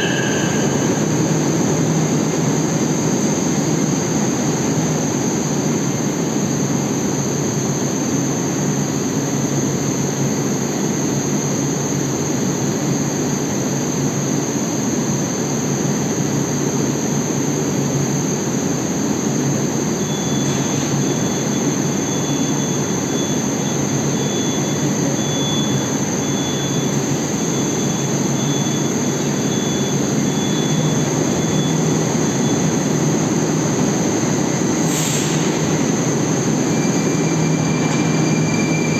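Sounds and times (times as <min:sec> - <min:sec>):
faint high beep: 0:00.0 - 0:02.2, 0:20.0 - 0:32.7
train hum and rushing: 0:00.0 - 0:06.1, 0:32.2 - 0:38.9.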